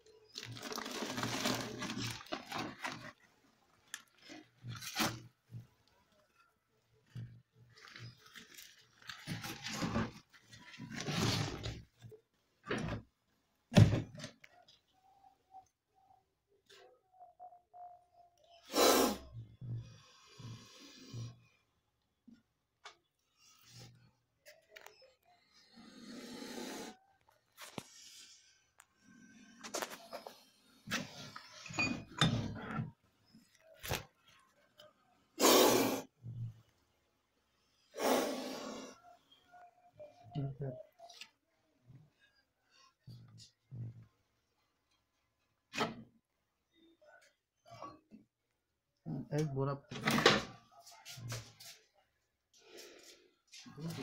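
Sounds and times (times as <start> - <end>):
snakes hissing: 18.6 - 19.3, 25.7 - 27.0, 35.4 - 36.1, 37.9 - 39.0.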